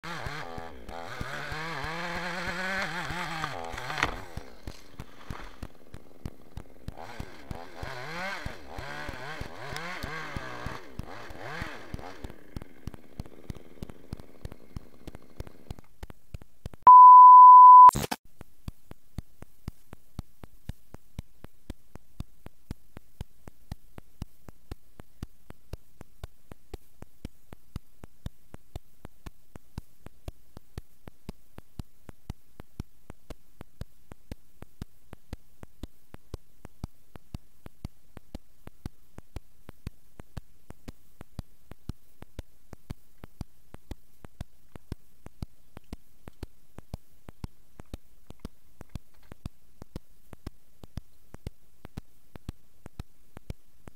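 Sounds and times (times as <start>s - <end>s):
faint ticking: 2.7s - 17.1s, 18.3s - 53.9s
electronic beep: 16.9s - 18.1s.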